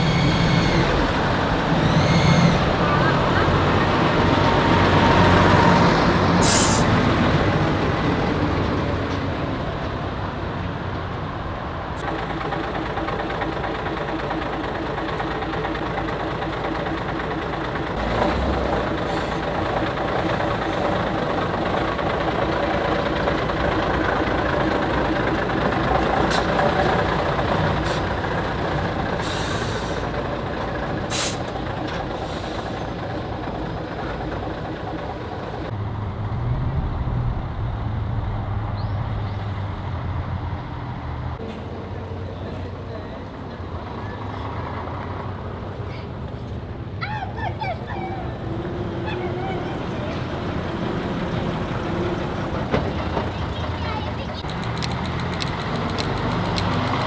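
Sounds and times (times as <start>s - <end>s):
bus diesel engine running: 0.0s - 57.0s
air brake hisses: 6.4s - 7.0s, 29.2s - 30.1s, 31.1s - 31.5s, 32.2s - 32.8s.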